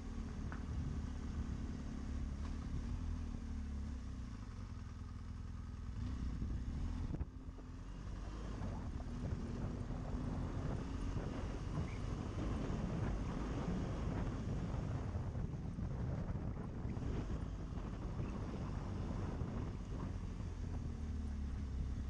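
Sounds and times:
motorcycle engine running: 0.0s - 22.0s
wind noise on microphone: 8.0s - 22.0s.

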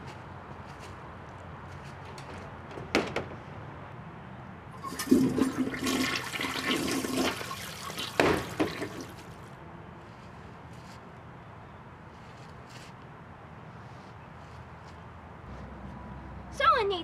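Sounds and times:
plastic door banging: 2.0s - 3.5s
toilet flush: 4.8s - 9.1s.

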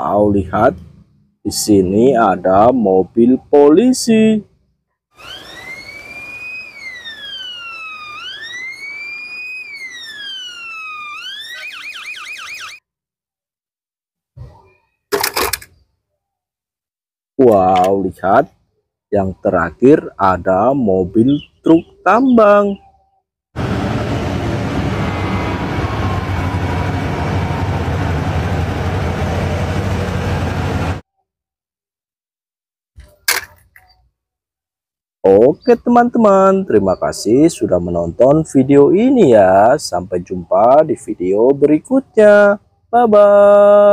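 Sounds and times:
police siren wailing and yelping: 5.2s - 12.8s, 24.7s - 29.8s
truck diesel engine rumbling: 23.6s - 31.0s.

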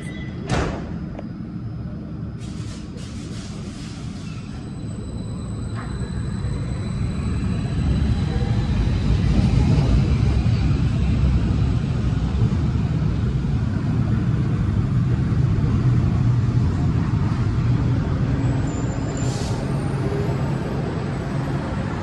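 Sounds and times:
train rumbling: 0.0s - 22.0s
high-pitched brake squeal and hiss: 2.4s - 8.6s, 18.4s - 20.4s.

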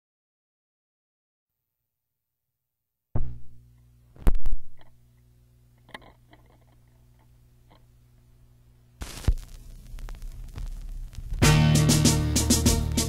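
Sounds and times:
record player knock: 3.2s - 3.6s
stylus dropping on a record: 3.2s - 4.9s, 9.0s - 13.0s
record player mains hum: 3.2s - 13.0s
vinyl clicks and pops: 4.2s - 5.0s, 9.0s - 11.5s.

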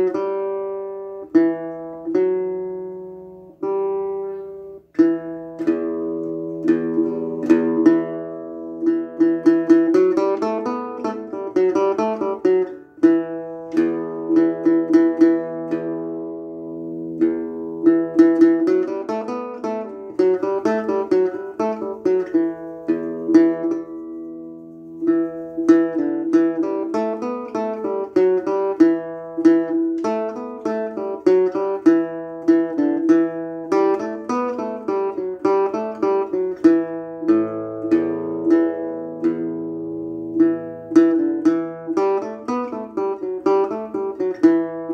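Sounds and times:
acoustic guitar: 0.0s - 44.9s.

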